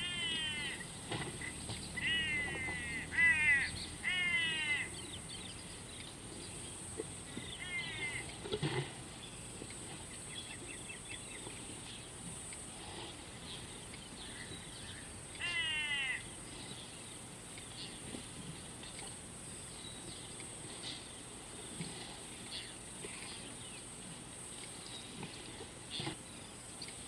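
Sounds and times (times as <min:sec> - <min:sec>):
harsh crow-like call: 0:00.0 - 0:00.9, 0:02.0 - 0:05.0, 0:07.6 - 0:08.3, 0:15.4 - 0:16.3
small birds chirping: 0:00.0 - 0:27.0.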